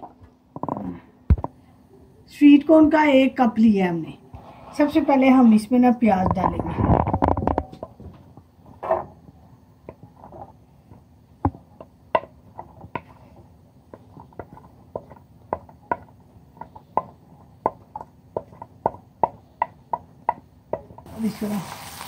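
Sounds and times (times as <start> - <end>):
wooden spatula tapping ceramic dish: 13.9 - 21.0.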